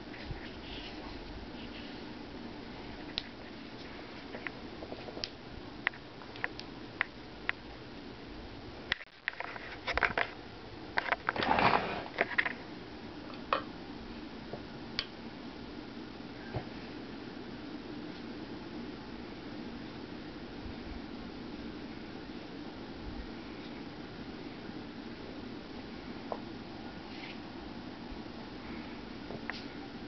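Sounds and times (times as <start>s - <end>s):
rustling handling noise: 0.0s - 5.3s
low room hum: 0.0s - 30.0s.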